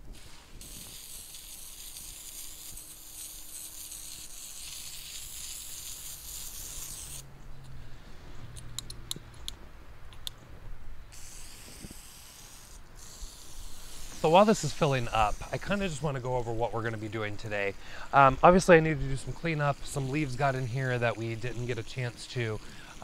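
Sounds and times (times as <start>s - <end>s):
hose spray hissing into water: 0.0s - 7.2s, 11.1s - 23.0s
sharp ticks: 8.5s - 10.4s.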